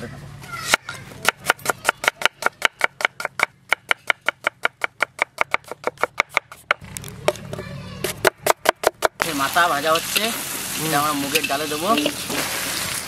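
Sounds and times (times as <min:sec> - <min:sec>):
knife chopping on wooden board: 0:00.7 - 0:06.8, 0:08.0 - 0:09.2.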